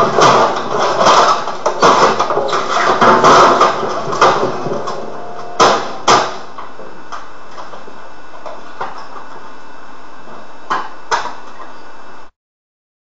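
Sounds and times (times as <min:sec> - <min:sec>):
computer and monitor being smashed: 0:00.0 - 0:06.6
sharp bangs: 0:00.0 - 0:06.6.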